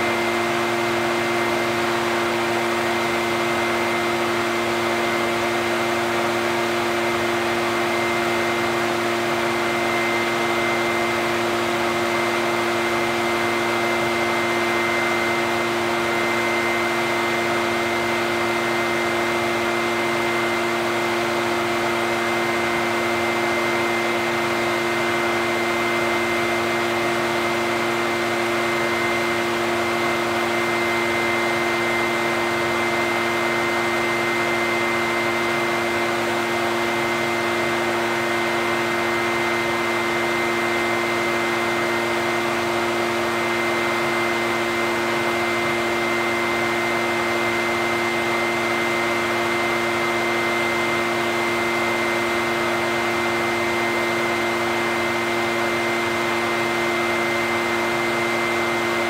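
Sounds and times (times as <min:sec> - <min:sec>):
leaf blower running: 0:00.0 - 0:59.0.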